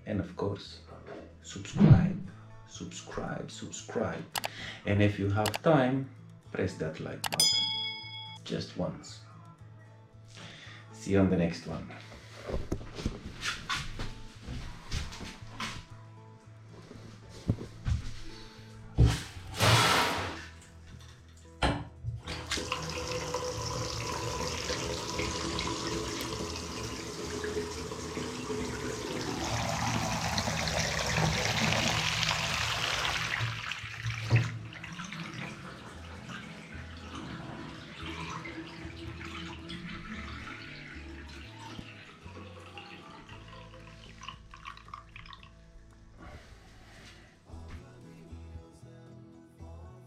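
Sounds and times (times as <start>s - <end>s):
water running from tap into bathtub: 22.3s - 45.6s.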